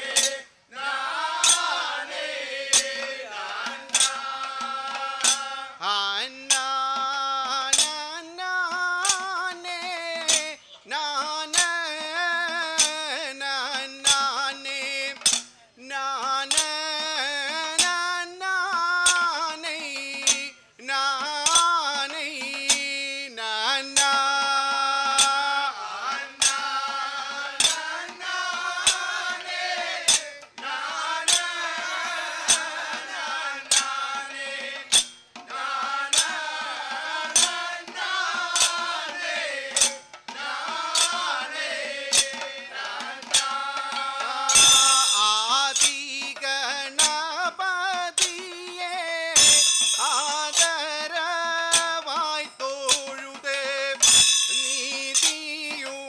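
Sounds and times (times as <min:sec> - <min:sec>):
sharp metallic strikes: 0:00.0 - 0:05.7, 0:24.8 - 0:47.3, 0:49.3 - 0:51.1, 0:51.7 - 0:55.9
men singing in unison: 0:00.0 - 0:56.0.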